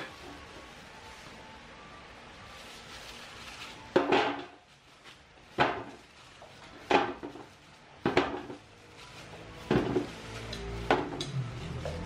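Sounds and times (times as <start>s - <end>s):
vegetables knocking on metal pan: 3.9s - 4.6s, 5.6s - 6.0s, 6.8s - 8.6s, 9.7s - 10.1s.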